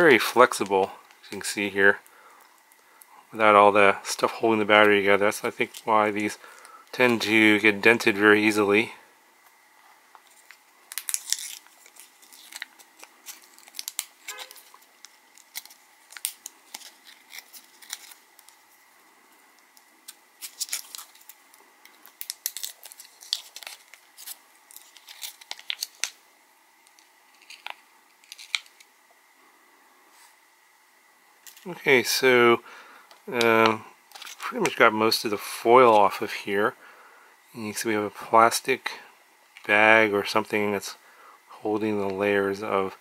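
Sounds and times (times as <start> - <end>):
foil crinkling and tearing: 10.3 - 18.7, 19.6 - 26.2, 26.9 - 28.9, 33.6 - 34.8.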